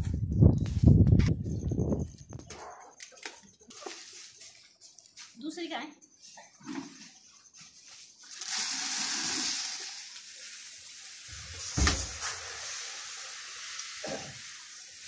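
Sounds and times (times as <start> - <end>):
grain pouring hiss: 8.0 - 15.0
loud thump: 11.7 - 12.2.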